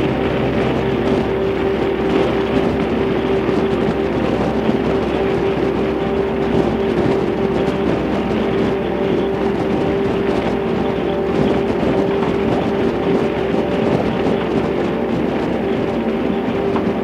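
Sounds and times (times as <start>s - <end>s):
motorcycle engine cruising: 0.0s - 17.0s
road noise: 0.0s - 17.0s
rushing wind: 0.0s - 17.0s.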